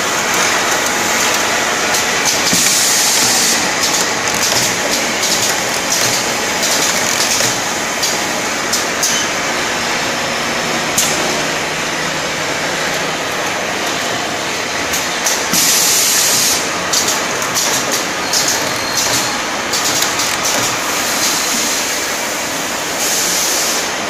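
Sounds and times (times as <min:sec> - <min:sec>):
bottling machinery din: 0:00.0 - 0:22.3.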